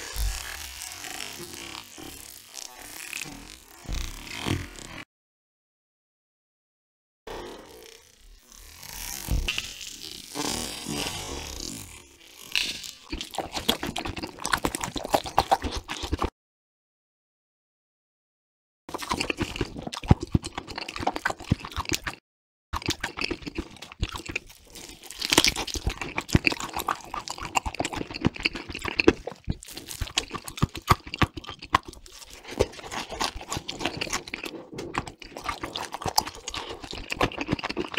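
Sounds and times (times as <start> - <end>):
chewing and crunching mouth noises: 12.6 - 16.3, 18.9 - 22.2, 22.8 - 37.9.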